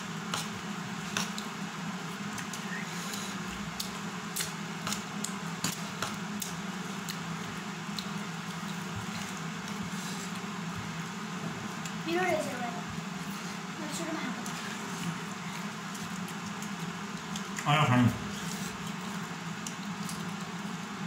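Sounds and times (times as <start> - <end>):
steady low hum: 0.0 - 21.0
wet chewing: 14.4 - 17.7.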